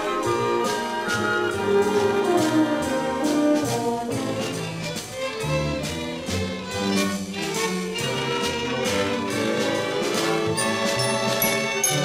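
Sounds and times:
orchestra playing a waltz: 0.0 - 12.0.

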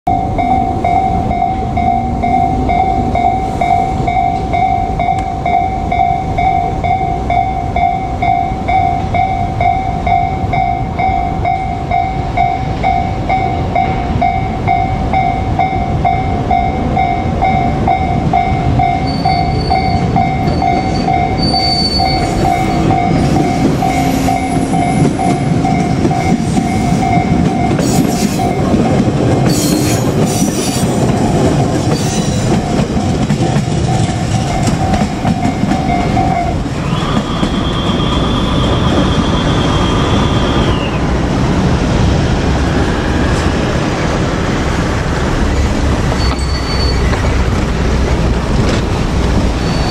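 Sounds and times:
higher bell ringing: 0.0 - 29.8, 31.9 - 36.6
level-crossing warning bell: 0.0 - 41.1, 45.6 - 47.6
electric train passing: 0.1 - 49.9.

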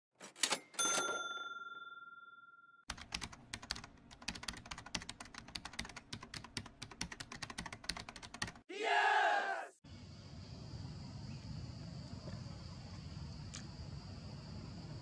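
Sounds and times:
bell-like ding: 0.8 - 2.8
computer keyboard typing: 2.9 - 8.6.

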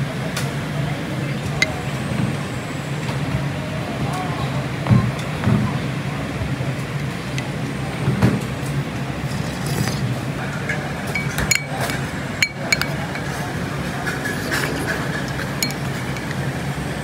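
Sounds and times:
crockery and cutlery clinking: 9.7 - 16.6
low background din: 10.3 - 17.0.

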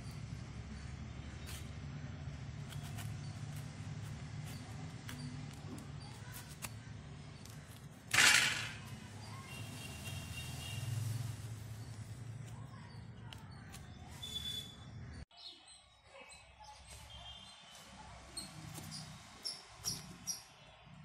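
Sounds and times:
knife scoring cocoa husk: 2.5 - 9.6, 12.3 - 14.7
knife scraping rush: 2.6 - 10.8.

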